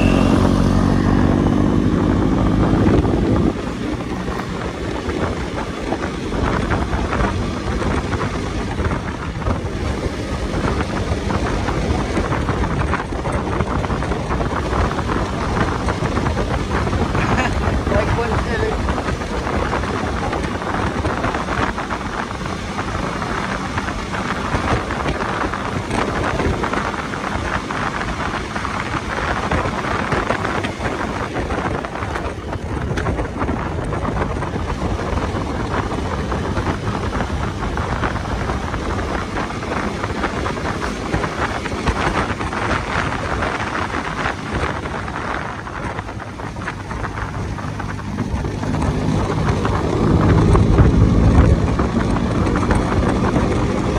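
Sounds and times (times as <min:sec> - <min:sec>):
low rumble: 0:00.0 - 0:53.9
wind buffeting microphone: 0:00.0 - 0:53.9.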